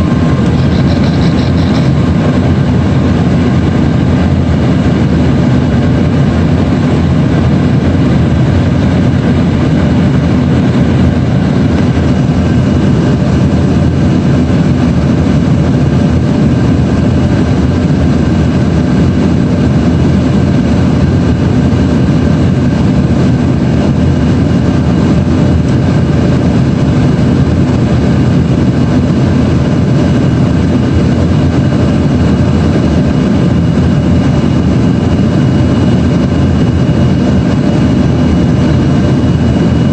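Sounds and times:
airflow rush: 0.0s - 39.9s
faint steady whine: 0.0s - 39.9s
jet engine drone: 0.0s - 39.9s.

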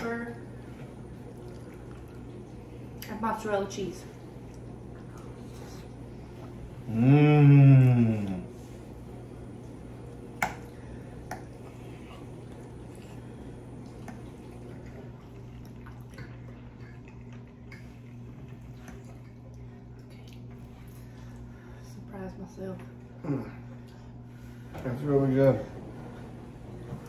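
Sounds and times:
wet chewing: 0.6s - 3.1s, 9.6s - 21.5s.

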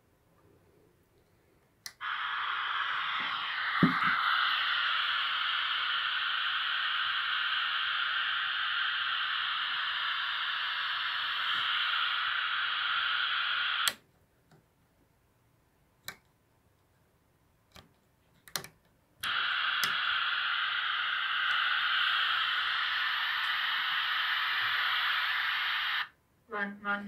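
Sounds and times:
radio clicks: 1.9s - 14.0s, 18.5s - 26.1s
radio static hiss: 1.9s - 14.0s, 19.2s - 26.2s.

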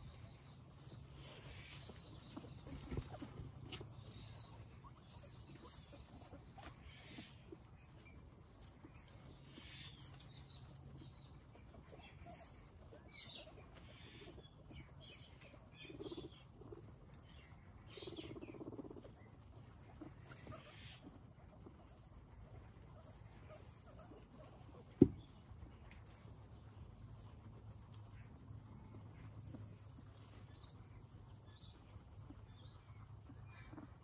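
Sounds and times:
rustling in straw: 0.0s - 14.6s
guinea pigs chewing: 0.0s - 34.0s.

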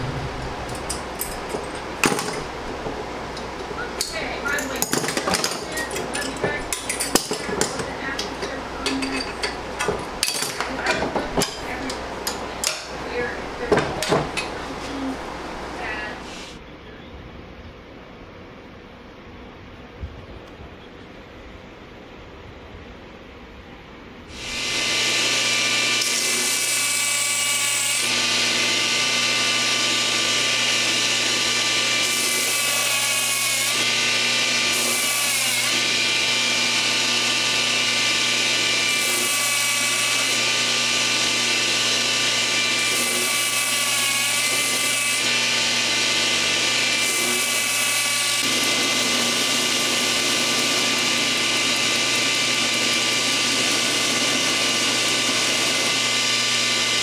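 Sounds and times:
belt grinder motor humming: 24.3s - 57.0s.

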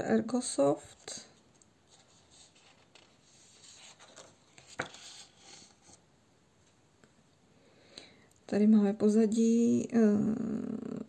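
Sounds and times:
paper page turning: 0.9s - 6.0s.

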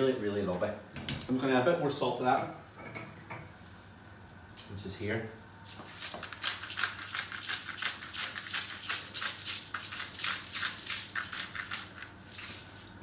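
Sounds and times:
salt mill grinding: 5.7s - 13.0s.

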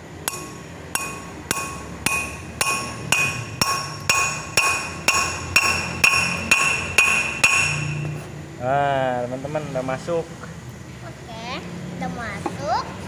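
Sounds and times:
hammer striking metal: 0.2s - 8.3s.

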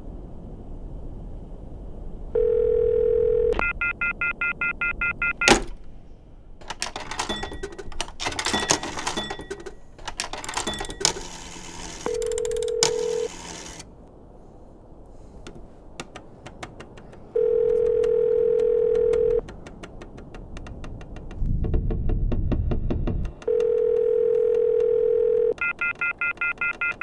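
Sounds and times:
telephone tone in handset: 2.4s - 5.6s, 10.8s - 13.8s, 17.4s - 19.4s, 23.5s - 27.0s
coin clattering into payphone slot: 6.6s - 13.8s.

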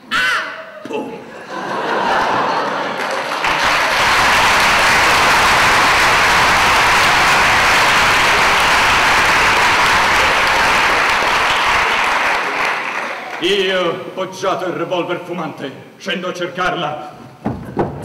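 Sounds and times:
audience applauding: 1.8s - 13.6s.

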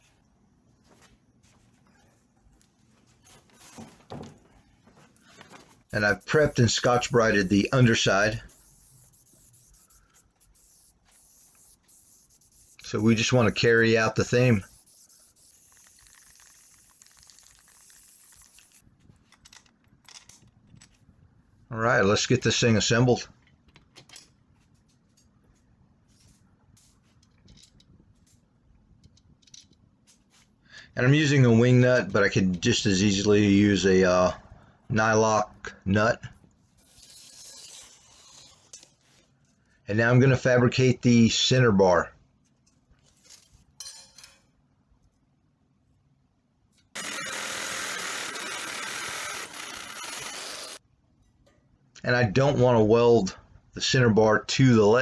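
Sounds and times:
reciprocating saw cutting steel: 47.0s - 50.8s.

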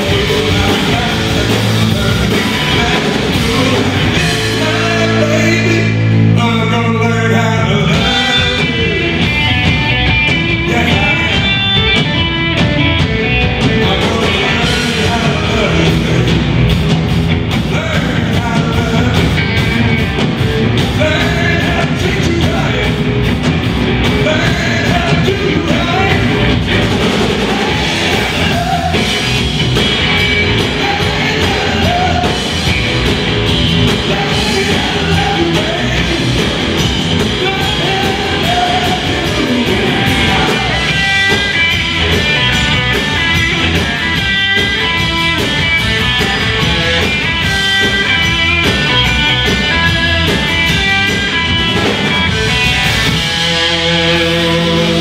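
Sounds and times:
person singing: 0.0s - 9.8s, 10.4s - 11.8s, 13.5s - 16.6s, 17.6s - 20.2s, 24.1s - 33.2s, 33.8s - 45.5s, 51.8s - 55.0s
bass: 0.0s - 55.0s
drums: 0.0s - 55.0s
electric guitars: 0.0s - 55.0s.

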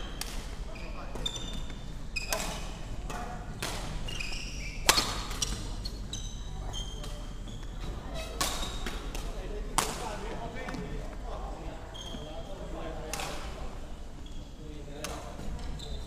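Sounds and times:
rackets hitting shuttlecock: 0.1s - 6.0s, 8.4s - 10.9s
shoes squeaking on wooden floor: 0.7s - 2.8s, 4.0s - 8.9s, 11.8s - 12.6s, 15.5s - 16.0s.

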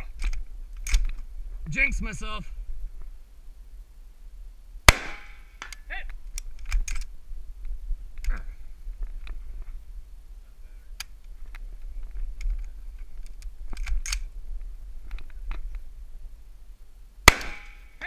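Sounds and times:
wind rumble on microphone: 0.0s - 17.6s
clicks of rifle handling: 0.2s - 1.2s, 5.6s - 7.1s, 12.4s - 14.3s
loud rifle shot: 4.9s - 5.5s, 17.2s - 18.0s.

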